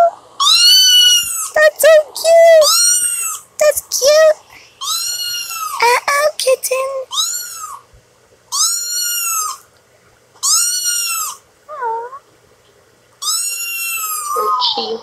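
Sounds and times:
kitten meowing: 0.4s - 1.6s, 2.6s - 3.4s, 4.8s - 5.8s, 7.1s - 7.8s, 8.5s - 9.6s, 10.4s - 12.2s, 13.2s - 15.0s.

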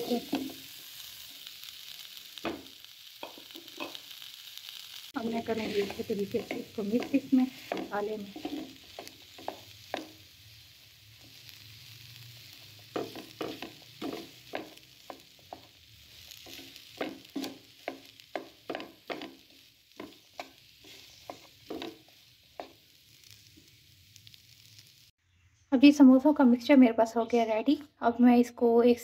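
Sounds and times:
faint frying sizzle: 0.0s - 25.2s
spatula scraping a pan: 5.2s - 10.3s, 11.2s - 23.5s.

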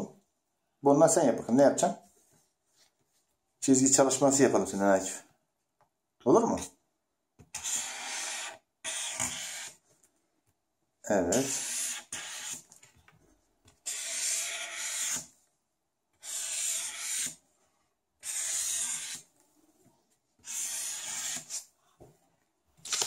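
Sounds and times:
marker drawing on paper: 7.5s - 9.8s, 11.3s - 12.8s, 13.6s - 15.4s, 16.2s - 17.4s, 18.2s - 19.4s, 20.4s - 21.7s.

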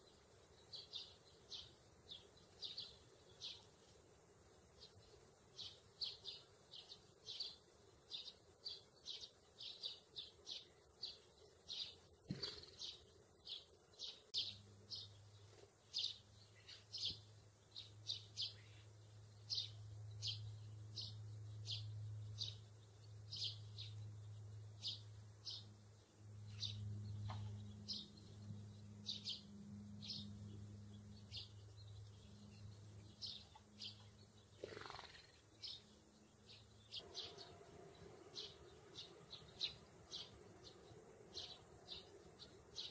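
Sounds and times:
sparrows chirping: 0.0s - 42.9s
low steady hum: 13.0s - 34.6s, 35.2s - 42.9s.

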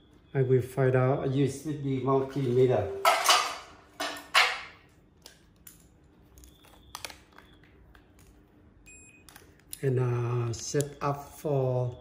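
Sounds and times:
rustling scrapes: 2.1s - 3.0s.

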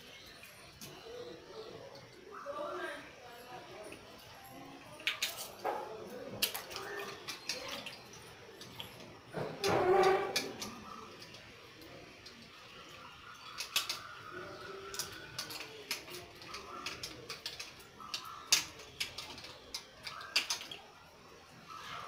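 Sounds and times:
fish pieces against metal bowls: 3.7s - 22.0s.

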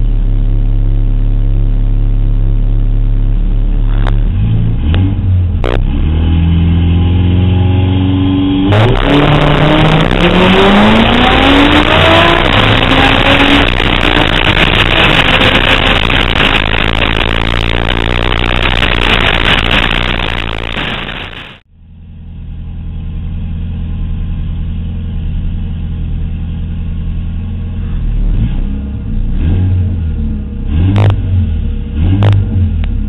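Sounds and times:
car engine accelerating: 0.0s - 33.0s
wind rush on microphone: 8.8s - 21.6s.

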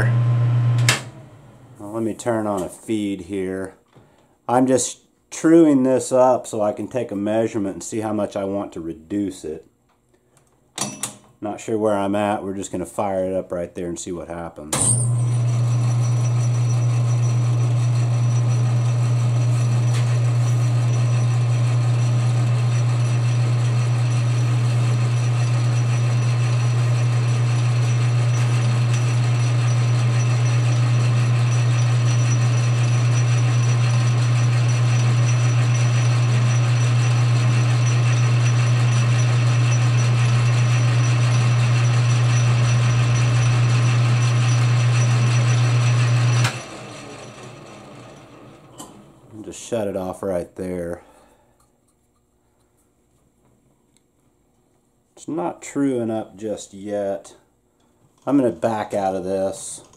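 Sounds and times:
metal lathe humming: 15.2s - 49.2s.

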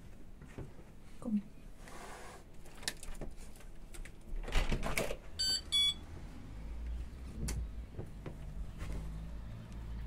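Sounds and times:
short high beeps: 5.4s - 6.0s.

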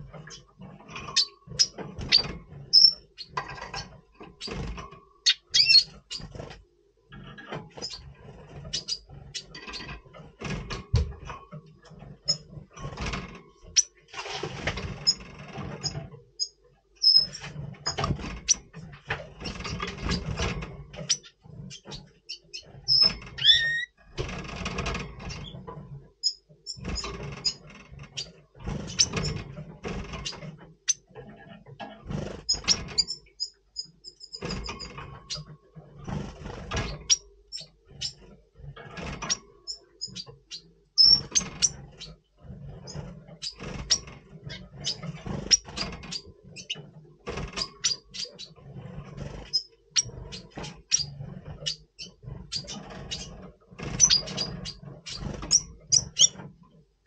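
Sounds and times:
bird chirping and calling: 1.2s - 3.4s, 5.2s - 6.3s, 16.4s - 18.6s, 21.0s - 23.9s, 39.3s - 41.8s, 47.8s - 48.5s, 54.0s - 56.4s
rustling noise: 10.1s - 16.2s.

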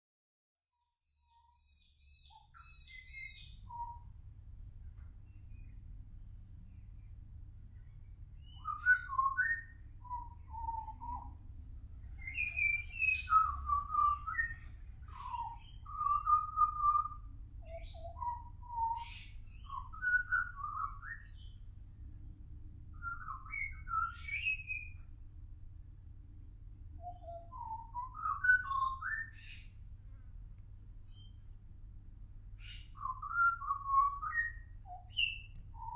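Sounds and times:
bird singing fluting whistles: 2.6s - 4.1s, 8.4s - 11.3s, 12.2s - 14.6s, 15.2s - 21.4s, 23.0s - 25.0s, 27.0s - 29.6s, 32.6s - 35.9s.

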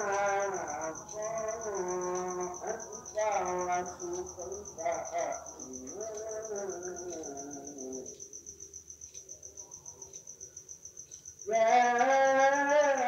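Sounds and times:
man chanting over loudspeaker: 0.0s - 8.1s, 11.5s - 13.0s
crickets chirping: 0.0s - 13.0s.

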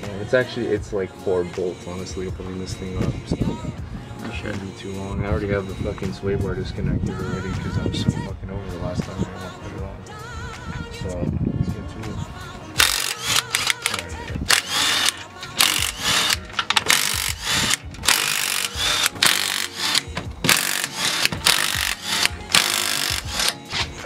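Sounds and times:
impact wrench bursts: 12.8s - 23.7s.

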